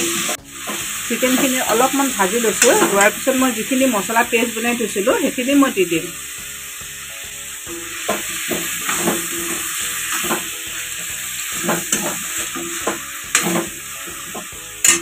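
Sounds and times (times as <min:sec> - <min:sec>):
steel spoon scraping a pan: 0:00.0 - 0:03.5, 0:07.7 - 0:15.0
chicken and onions sizzling in oil: 0:00.0 - 0:15.0.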